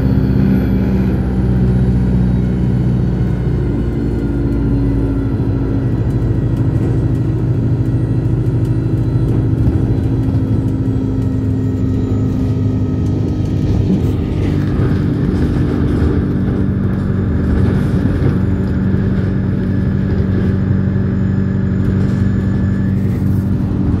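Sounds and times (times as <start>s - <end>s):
bus engine drone: 0.0s - 24.0s
tyre and road noise: 0.0s - 24.0s.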